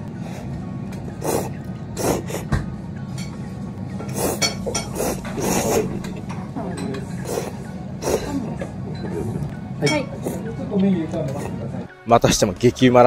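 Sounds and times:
slurping noodles: 0:01.2 - 0:02.5, 0:04.1 - 0:06.2, 0:07.2 - 0:08.3.

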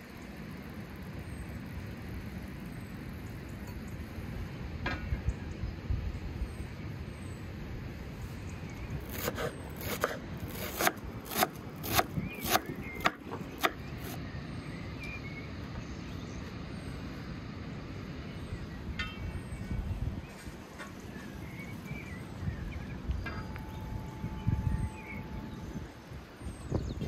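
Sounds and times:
knife chopping herbs on wood: 0:09.0 - 0:14.2.

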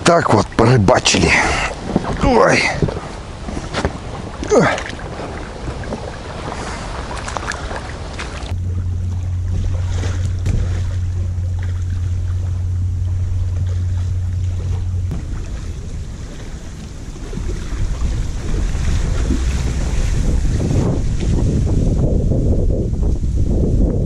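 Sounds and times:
water lapping at shore: 0:00.0 - 0:22.2
wind rumbling on microphone: 0:00.0 - 0:24.0
water splashing around wading legs: 0:00.4 - 0:21.9.

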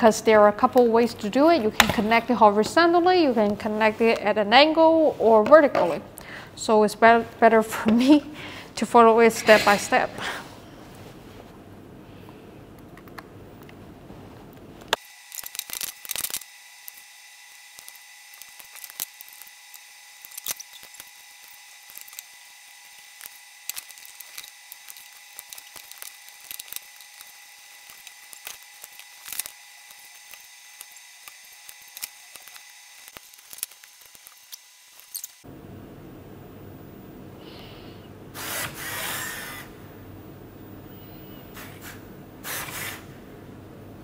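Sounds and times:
faint high hum: 0:35.5 - 0:44.0.

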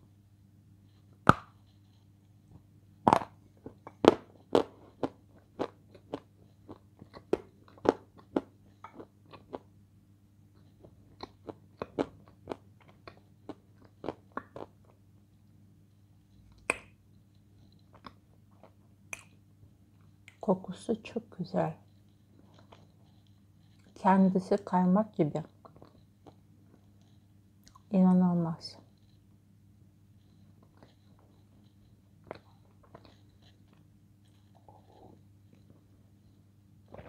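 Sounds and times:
crunchy food chewing: 0:03.1 - 0:09.7, 0:10.5 - 0:20.5, 0:21.8 - 0:24.0, 0:25.4 - 0:27.9, 0:30.2 - 0:37.0.

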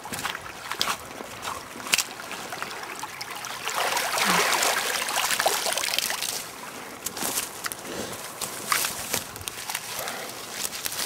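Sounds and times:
water trickling and splashing: 0:00.0 - 0:11.0.

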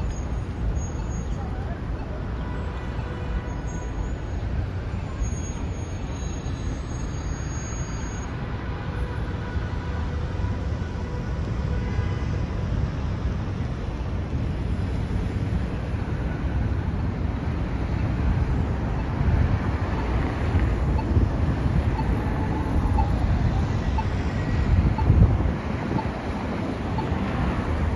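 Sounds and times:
passing vehicles rumbling: 0:00.0 - 0:27.9
faint steady tones: 0:15.8 - 0:27.9.

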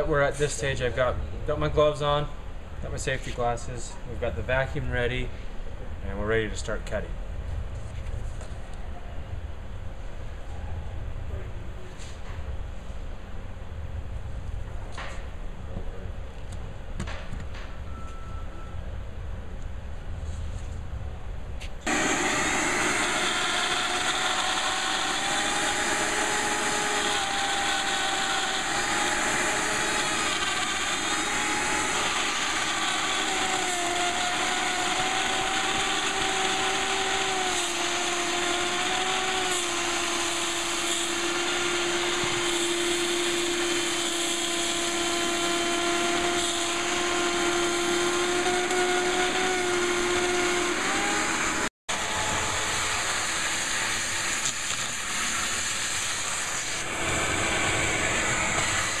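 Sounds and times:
router motor whine: 0:21.8 - 0:59.0
vacuum hose running: 0:21.8 - 0:59.0.

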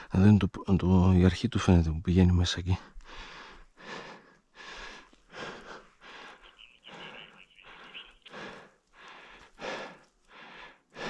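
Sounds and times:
person breathing hard: 0:02.9 - 0:11.0.

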